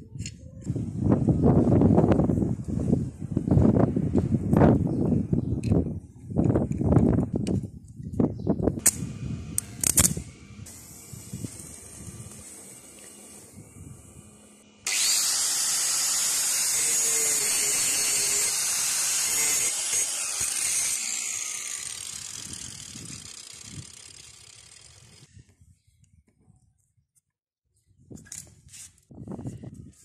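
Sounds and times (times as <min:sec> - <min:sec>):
angle grinder grinding metal: 0:14.8 - 0:25.3.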